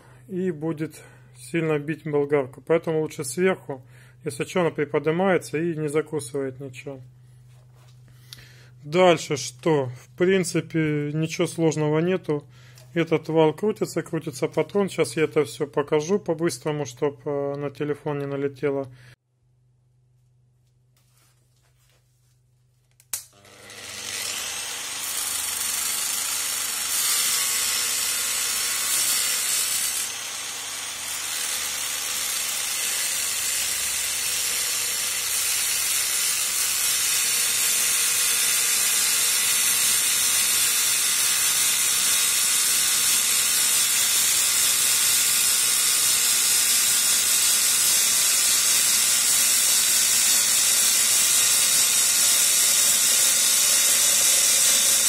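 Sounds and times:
angle grinder grinding steel: 23.2 - 55.0.

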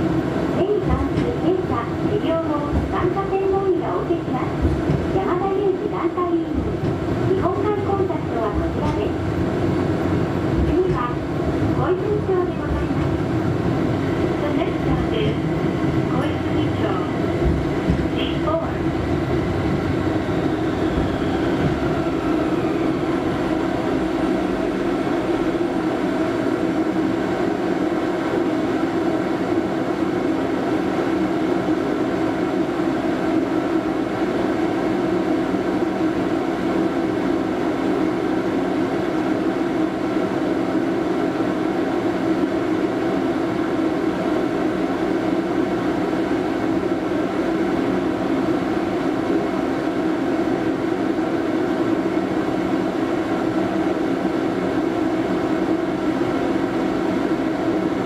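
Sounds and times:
tram wheels rumbling on rails: 0.0 - 31.8
tram running gear hum: 0.0 - 58.0.

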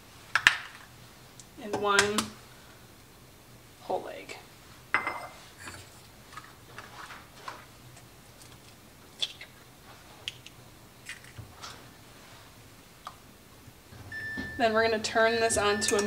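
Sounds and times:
dishes and utensils clicking: 15.5 - 16.0.

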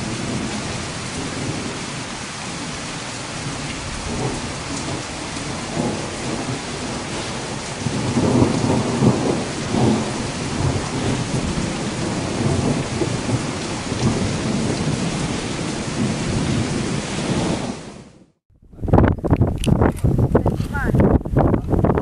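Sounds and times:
rolling thunder: 0.0 - 22.0
steady rain: 0.0 - 22.0.

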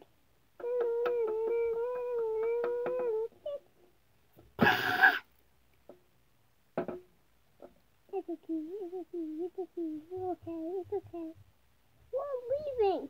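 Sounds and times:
faint taps: 0.0 - 4.6
child moaning: 0.6 - 3.6.

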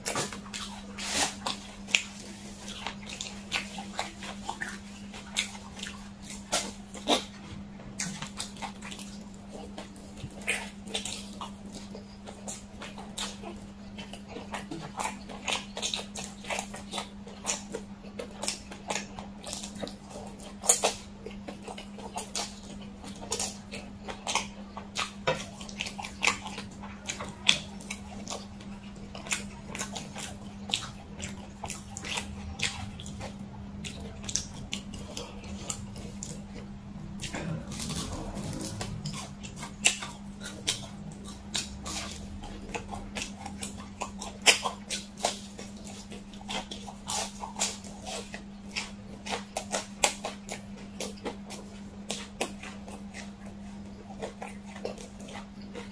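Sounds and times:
chewing and slurping: 0.0 - 55.9
low hum: 32.2 - 44.0.

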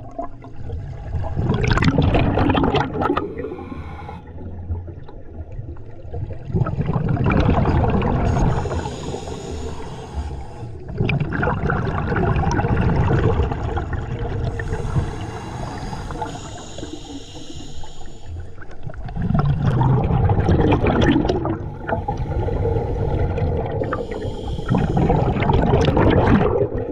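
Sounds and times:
exhaled bubbles rumbling: 0.0 - 17.3, 18.0 - 26.9
regulator inhalation hiss: 3.3 - 4.3, 8.3 - 10.8, 14.6 - 18.5, 23.8 - 25.3.

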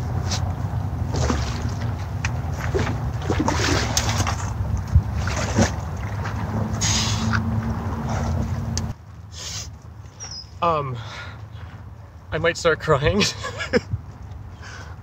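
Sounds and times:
water splashing and sloshing: 0.0 - 8.8
wind rumble on microphone: 0.0 - 9.0, 13.7 - 14.5.

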